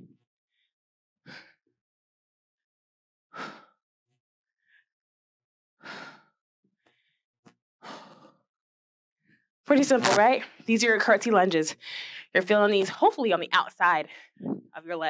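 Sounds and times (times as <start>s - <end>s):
woman breathing hard: 3.3s - 3.8s, 5.8s - 7.1s, 7.8s - 8.4s, 11.8s - 12.3s.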